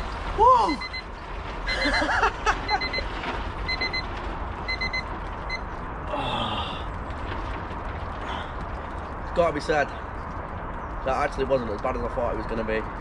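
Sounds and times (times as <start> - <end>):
digital timer alarm beeping: 4.7 - 5.6.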